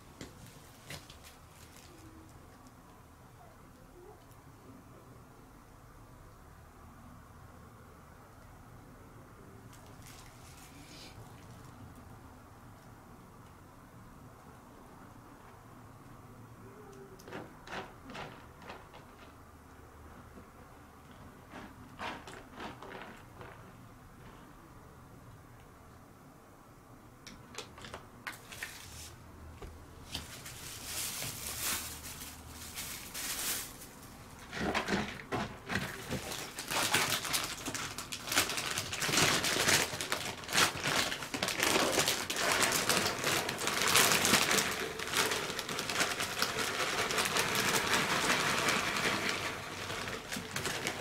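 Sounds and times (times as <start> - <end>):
litter pellets pouring: 35.8 - 51.0.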